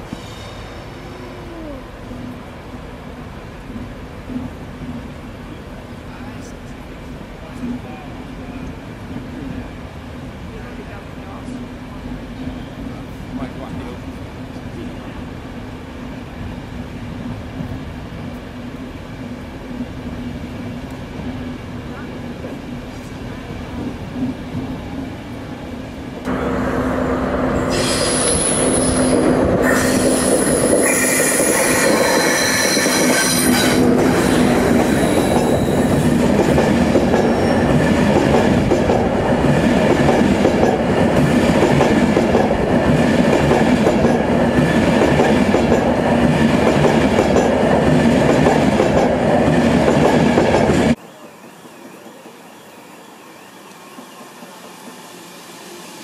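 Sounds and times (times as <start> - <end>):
train wheels squealing: 0.0 - 1.1, 27.6 - 36.2, 37.2 - 37.7
rumble of wheels on rail: 0.0 - 56.0.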